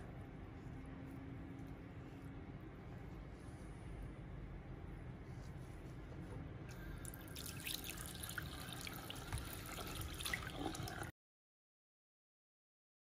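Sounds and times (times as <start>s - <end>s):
water trickling and dripping in basin: 7.0s - 11.1s.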